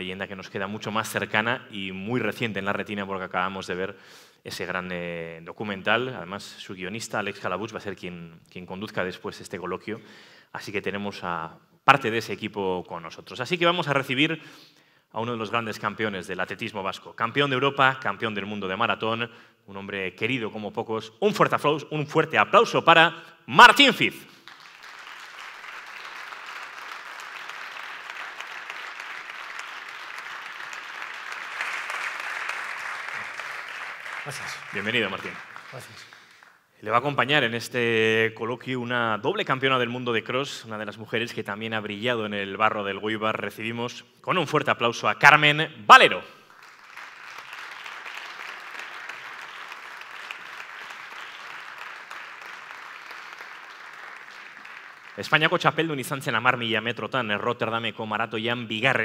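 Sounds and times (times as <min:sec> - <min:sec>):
audience applauding: 0:24.3 - 0:36.6, 0:46.4 - 0:56.0.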